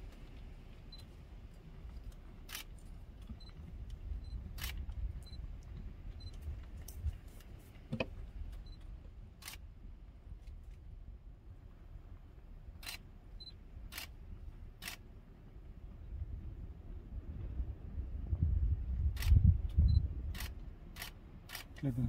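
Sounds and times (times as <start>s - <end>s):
low rumble: 0.0s - 7.3s, 8.1s - 22.0s
sharp clicks: 19.2s - 21.9s.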